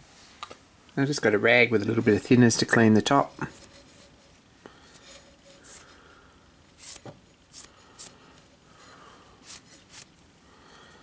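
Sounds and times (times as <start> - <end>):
cloth rubbing on metal: 2.7 - 5.9.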